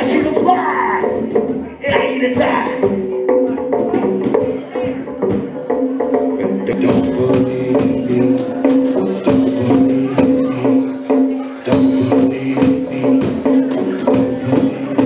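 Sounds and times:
live band playing instrumental: 0:00.0 - 0:15.0
drum hits: 0:06.7 - 0:15.0.

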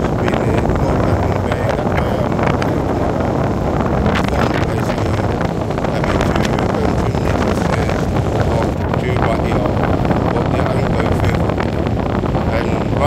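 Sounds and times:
wind blowing across microphone: 0:00.0 - 0:13.0.

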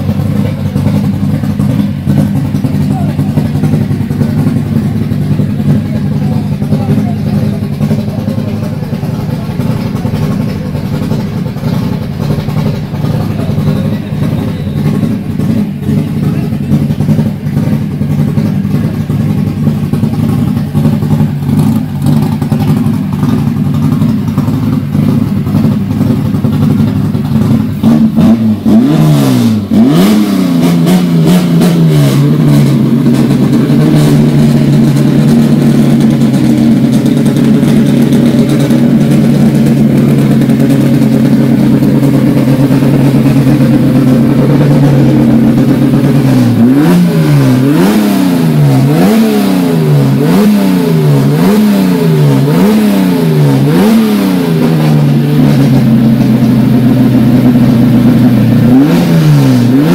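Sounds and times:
car engine idling and revving: 0:00.0 - 0:59.9.

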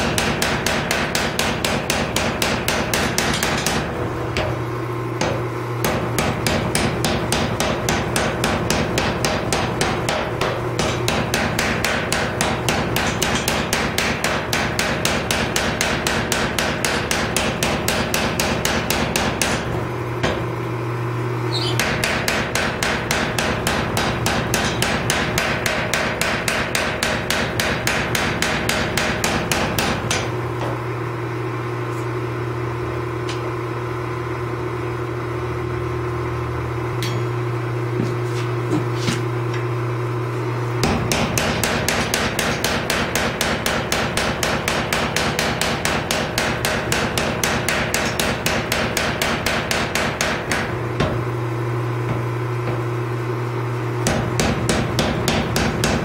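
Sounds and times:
power hammer pounding metal: 0:00.0 - 0:20.6, 0:21.8 - 0:30.7, 0:40.8 - 0:51.4, 0:54.0 - 0:56.0
motor hum: 0:00.0 - 0:56.0.

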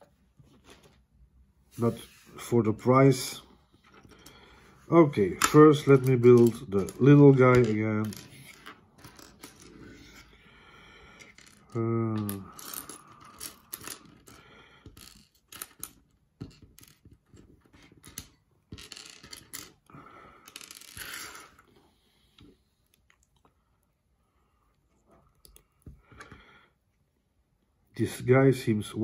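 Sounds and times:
plastic blocks clicking and clattering: 0:05.3 - 0:09.8, 0:11.2 - 0:21.7.

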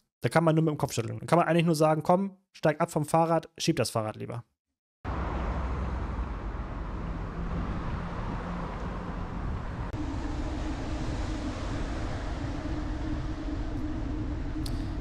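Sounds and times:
cars passing: 0:05.1 - 0:15.0
wind rushing over microphone: 0:06.1 - 0:15.0
low steady hum: 0:08.3 - 0:15.0.

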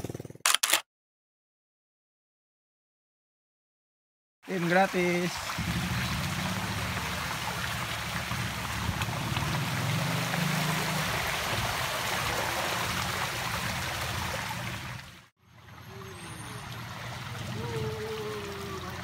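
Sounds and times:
bike tyres splashing through water: 0:04.5 - 0:19.0.

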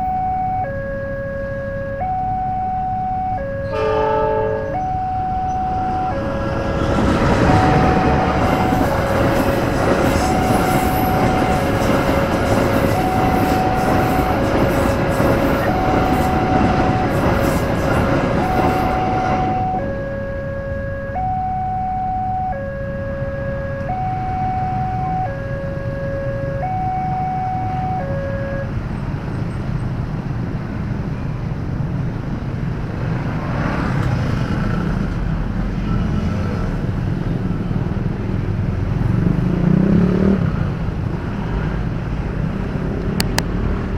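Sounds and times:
level crossing two-note alarm: 0:00.0 - 0:28.8
motorcycle and vehicle traffic: 0:00.0 - 0:43.9.

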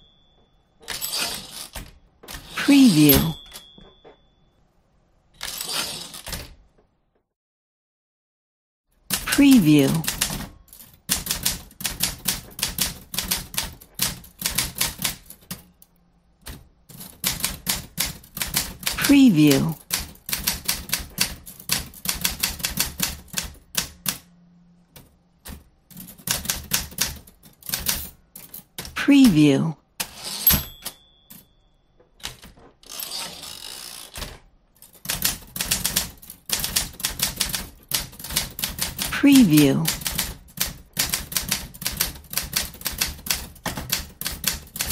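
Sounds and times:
typewriter keys clacking: 0:09.1 - 0:15.8, 0:16.4 - 0:24.2, 0:24.9 - 0:29.0, 0:34.8 - 0:44.9.

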